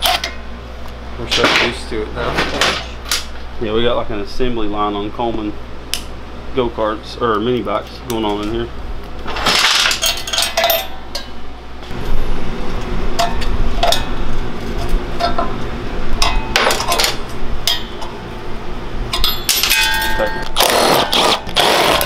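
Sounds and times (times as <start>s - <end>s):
steady low hum: 0.0s - 22.0s
tools clanking on metal: 1.3s - 3.3s, 9.3s - 11.4s, 14.8s - 15.6s, 16.2s - 18.2s, 19.1s - 21.2s.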